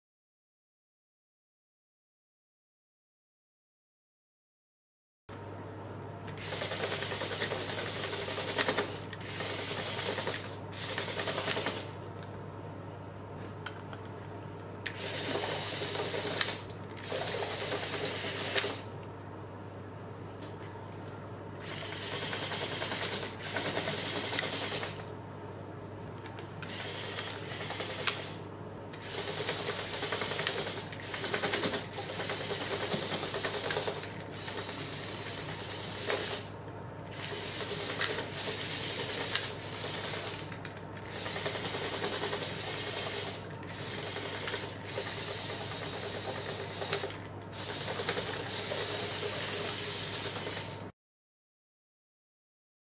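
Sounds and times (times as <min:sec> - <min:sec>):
toy motors whirring through gears: 0:06.3 - 0:12.0, 0:14.8 - 0:18.9, 0:21.6 - 0:25.1, 0:26.6 - 0:28.4, 0:29.0 - 0:50.8.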